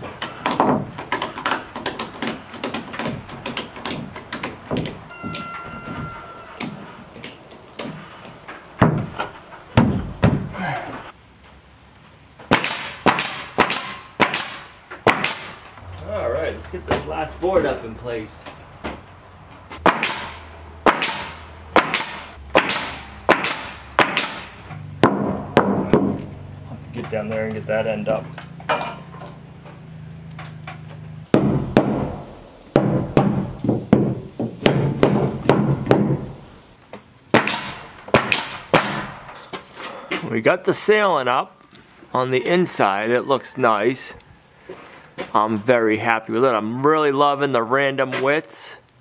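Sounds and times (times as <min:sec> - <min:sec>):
loud knocks: 0:00.4 - 0:06.8, 0:08.8 - 0:10.6, 0:19.8 - 0:26.3, 0:31.3 - 0:36.4
nail gun firing: 0:12.5 - 0:15.6, 0:19.8 - 0:26.2, 0:37.3 - 0:39.2.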